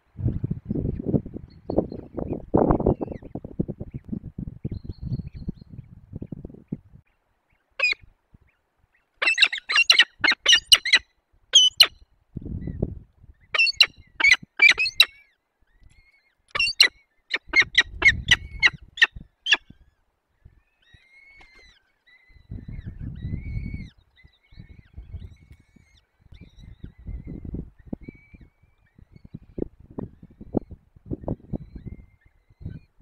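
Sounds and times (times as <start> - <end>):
falcons harsh rapid calls: 9.2 - 11.0.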